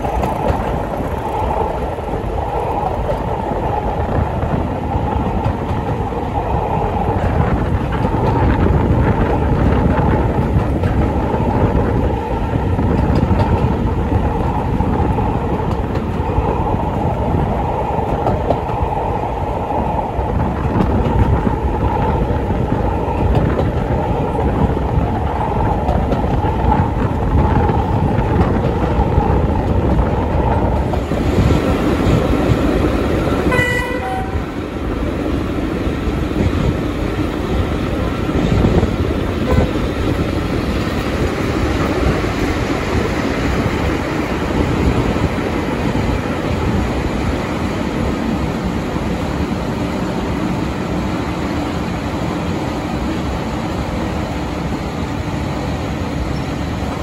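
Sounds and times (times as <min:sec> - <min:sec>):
train wheels rumbling on rail: 0:00.0 - 0:57.0
train horn blast: 0:33.5 - 0:34.6, 0:39.4 - 0:39.8.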